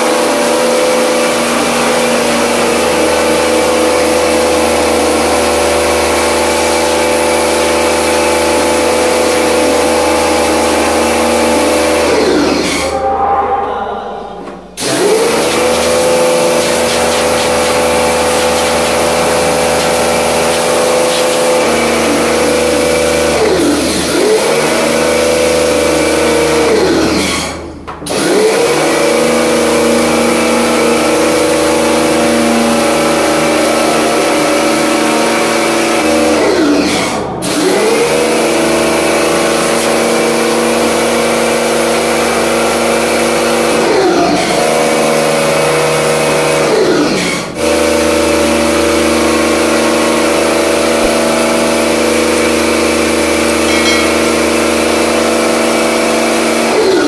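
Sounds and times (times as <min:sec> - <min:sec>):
pressure washer motor hum: 0:00.0 - 0:13.0, 0:14.7 - 0:57.0
water spray: 0:14.8 - 0:25.2.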